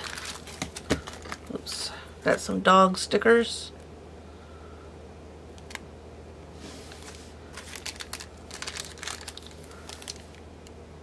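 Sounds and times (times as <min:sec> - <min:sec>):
plastic packaging crinkling: 0:00.0 - 0:01.8, 0:06.9 - 0:10.5.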